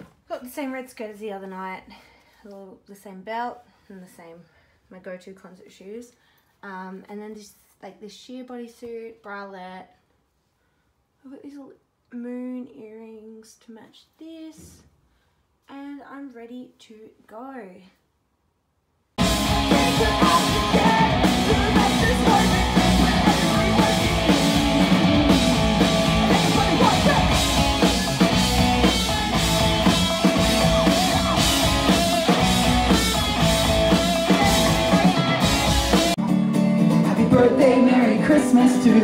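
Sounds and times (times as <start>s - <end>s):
person singing: 19.2s - 28.3s, 30.1s - 39.0s
drum kit beats: 19.2s - 39.0s
electric guitars: 19.2s - 39.0s.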